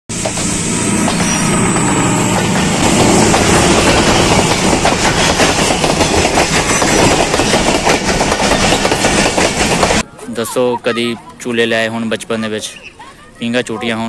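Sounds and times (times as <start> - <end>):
train wheels rushing on rails: 0.1 - 10.0.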